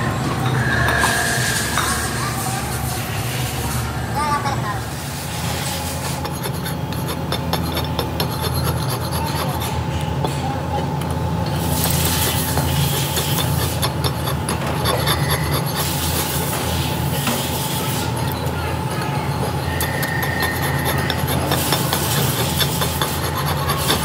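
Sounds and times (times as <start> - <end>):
hand file rasping on metal: 5.2 - 9.9, 11.6 - 24.0.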